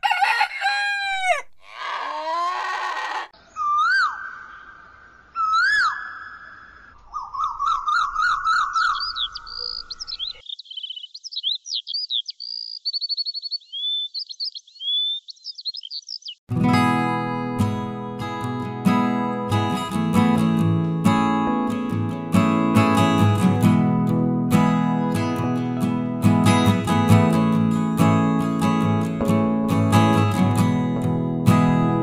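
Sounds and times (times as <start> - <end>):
rooster crowing: 0.0 - 3.3
animal calls: 1.1 - 4.8
songbird chirping: 1.6 - 16.5.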